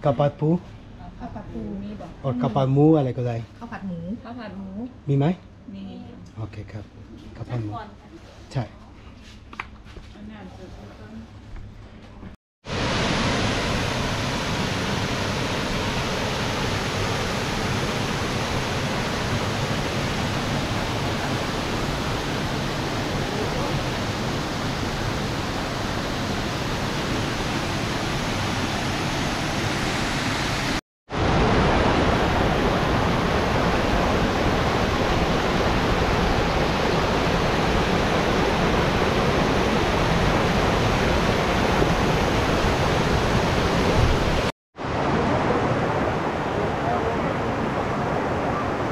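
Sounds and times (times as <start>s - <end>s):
waterfall roaring: 12.7s - 48.9s.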